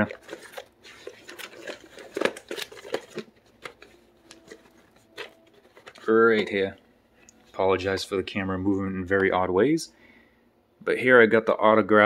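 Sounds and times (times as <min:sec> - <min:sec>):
packaging clicks and rustles: 0:00.0 - 0:06.7.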